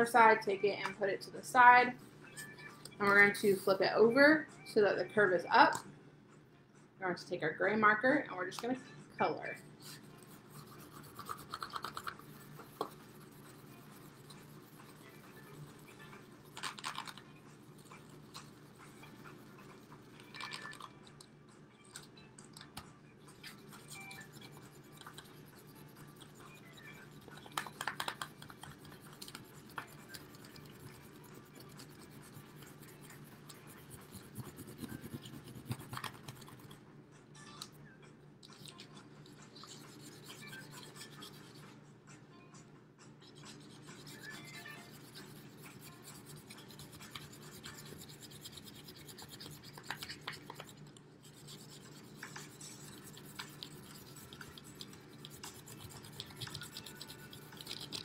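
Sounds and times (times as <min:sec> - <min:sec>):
marker scribbling on paper plate: 0:03.0 - 0:03.8, 0:09.8 - 0:20.8, 0:23.3 - 0:36.8, 0:38.5 - 0:41.7, 0:43.2 - 0:58.0.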